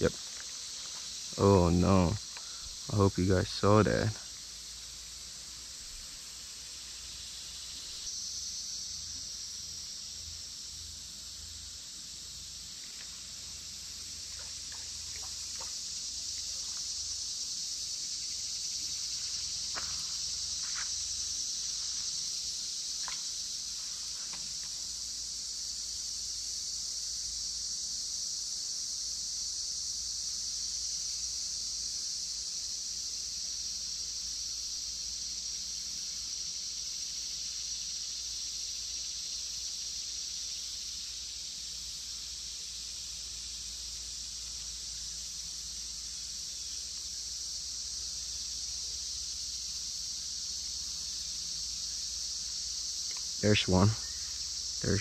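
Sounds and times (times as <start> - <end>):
faint chirps: 0.0 - 4.8, 53.0 - 55.0
insects chorus: 0.0 - 55.0.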